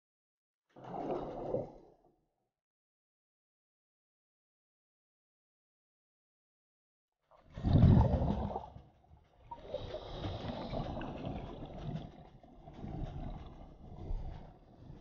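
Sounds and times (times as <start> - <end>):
underwater rumble: 7.5 - 15.0
regulator breathing bubbles underwater: 9.6 - 11.5.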